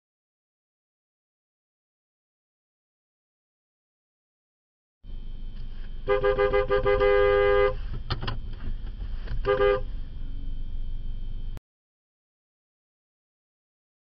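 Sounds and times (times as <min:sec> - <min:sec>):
low vehicle rumble: 0:05.1 - 0:11.6
two-note car horn: 0:06.0 - 0:07.9, 0:09.4 - 0:09.9.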